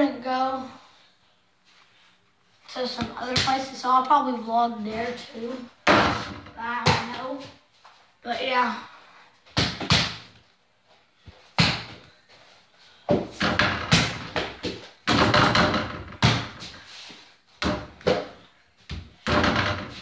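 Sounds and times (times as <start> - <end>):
ball banging against hoop and door: 5.8 - 7.2, 13.1 - 16.8, 17.6 - 20.0
ball bouncing on floor: 13.1 - 16.7, 17.6 - 20.0.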